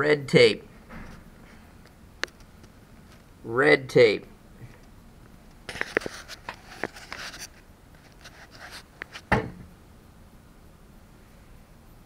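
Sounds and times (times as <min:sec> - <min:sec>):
camera handling clicks and rustles: 0:05.7 - 0:08.3.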